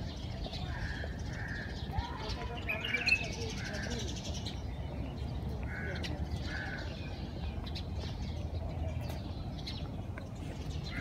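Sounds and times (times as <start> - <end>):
crows cawing: 0.6 - 2.0, 5.7 - 7.0.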